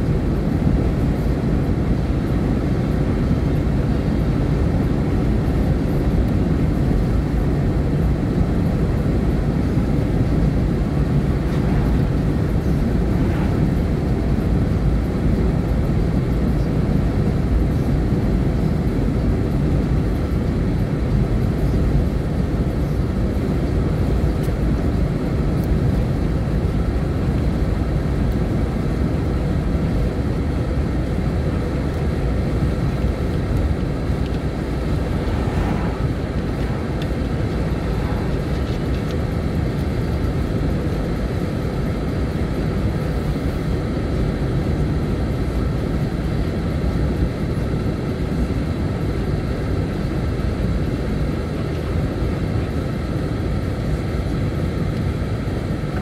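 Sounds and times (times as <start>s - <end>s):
vehicle road and engine rumble: 0.0s - 56.0s.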